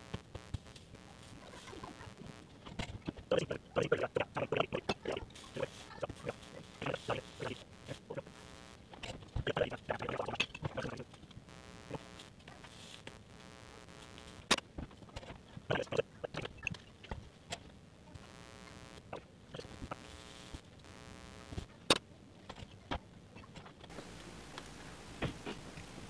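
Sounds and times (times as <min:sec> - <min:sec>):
flux crackling and sizzling: 0:00.0 - 0:21.9, 0:23.9 - 0:26.0
faint steady hum: 0:00.0 - 0:26.0.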